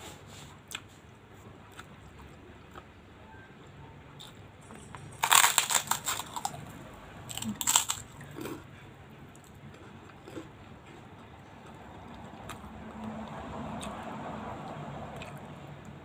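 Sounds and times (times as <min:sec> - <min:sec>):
loud crunching of cracker: 0:05.2 - 0:06.7, 0:07.3 - 0:08.6.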